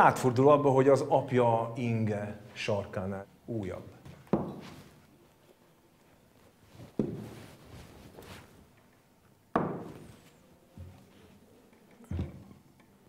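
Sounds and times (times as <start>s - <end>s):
faint handling and shuffling: 3.5s - 12.8s
objects knocking on table: 4.3s - 4.6s, 9.6s - 10.1s.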